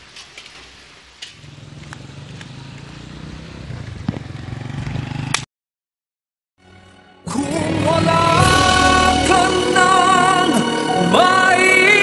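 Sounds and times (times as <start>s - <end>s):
small motorcycle engine: 1.4s - 5.5s.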